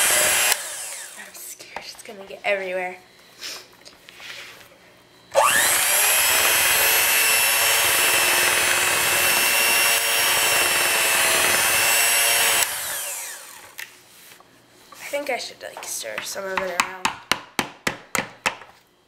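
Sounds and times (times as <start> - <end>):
electric hand mixer whining: 0.0 - 1.3, 5.3 - 13.8.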